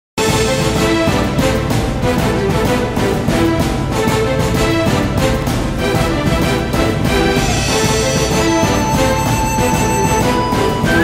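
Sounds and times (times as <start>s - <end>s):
television theme music: 0.2s - 11.0s.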